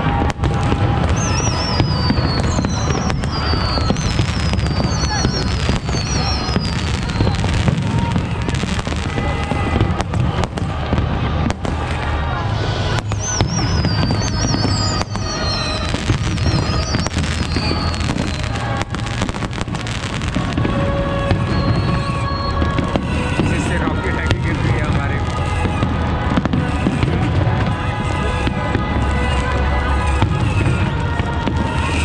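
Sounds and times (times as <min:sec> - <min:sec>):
fireworks bangs and crackles: 0:00.0 - 0:32.0
high whistles sliding down: 0:01.1 - 0:07.8, 0:12.9 - 0:20.0.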